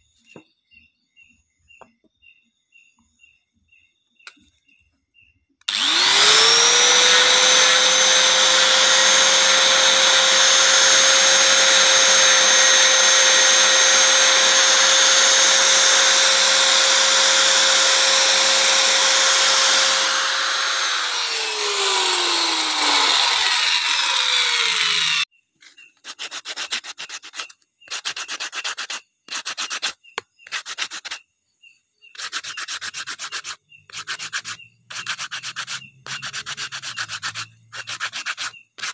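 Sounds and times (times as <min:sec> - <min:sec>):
angle grinder sanding wood: 0:05.7 - 0:25.3, 0:32.2 - 0:38.9
hand sanding wood strokes: 0:05.7 - 0:31.2, 0:32.2 - 0:38.9.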